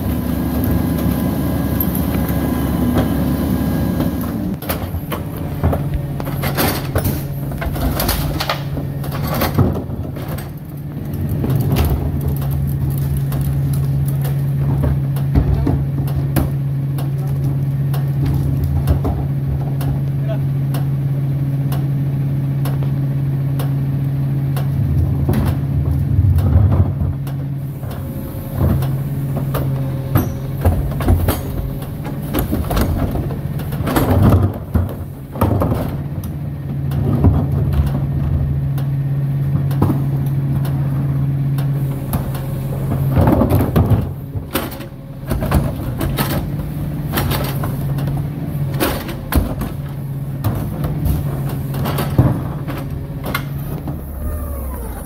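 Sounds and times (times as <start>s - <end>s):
trash carts clanking and banging: 0.0s - 23.8s, 24.4s - 55.0s
diesel truck engine idling: 44.0s - 55.0s.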